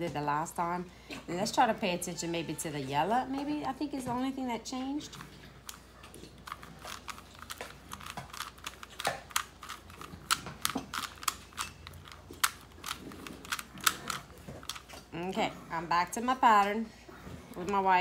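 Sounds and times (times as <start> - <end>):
puzzle cube plastic clicking: 6.4 - 15.0.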